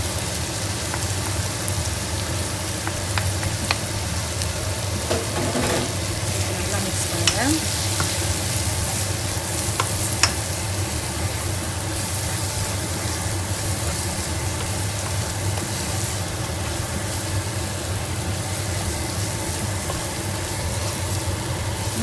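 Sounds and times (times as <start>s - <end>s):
masala sizzling in oil: 0.0s - 22.0s
spatula knocking against pan: 5.1s - 6.0s, 9.7s - 10.5s
wooden spatula stirring: 5.1s - 21.2s.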